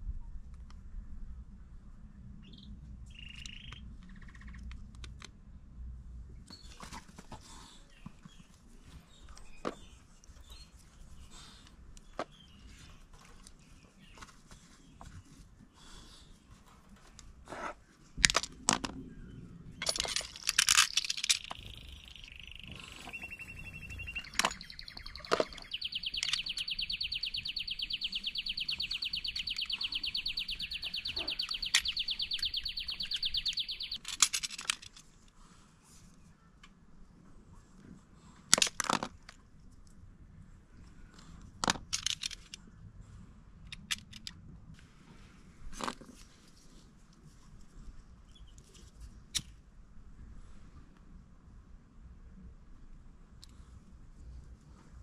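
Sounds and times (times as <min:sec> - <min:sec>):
hand tools clicking and snapping: 0:19.8 - 0:21.9, 0:34.0 - 0:35.0
rapid high chirping trill: 0:20.9 - 0:34.0.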